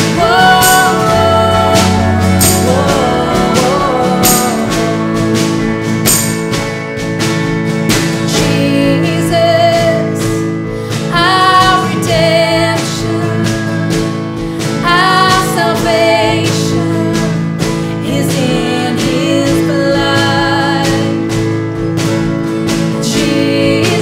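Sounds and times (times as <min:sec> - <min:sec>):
women singing: 0:00.0 - 0:05.8, 0:08.3 - 0:10.4, 0:11.1 - 0:14.1, 0:14.7 - 0:21.4, 0:23.0 - 0:24.0
acoustic guitar: 0:00.0 - 0:24.0
drum kit beat: 0:00.0 - 0:24.0
keyboard: 0:00.0 - 0:24.0.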